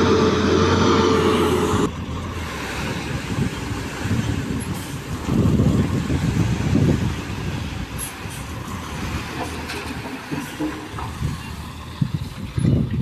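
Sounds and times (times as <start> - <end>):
low rumble: 0.0 - 2.6
truck engine running: 0.0 - 13.0.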